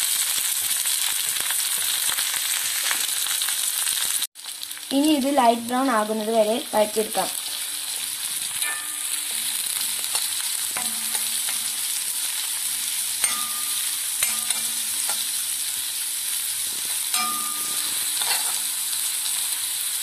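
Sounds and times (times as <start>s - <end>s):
vegetables sizzling in hot oil: 0.0s - 20.0s
metal spoon knocking and scraping pan: 8.6s - 12.0s, 13.2s - 15.4s, 17.1s - 18.7s.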